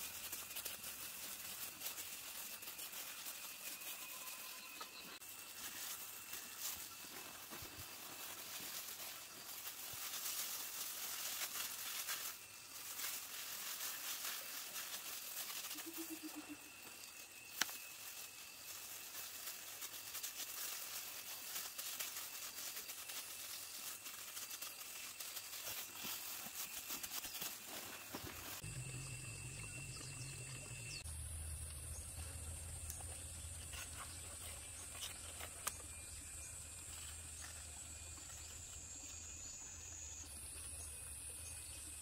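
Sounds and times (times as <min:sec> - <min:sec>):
plastic bag and gloves crinkling: 0:00.0 - 0:28.8.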